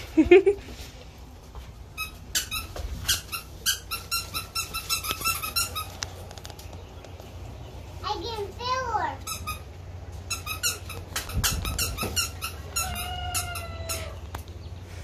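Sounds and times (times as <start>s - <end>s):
squeaky dog toy squeaking: 1.9s - 6.0s, 9.2s - 14.2s.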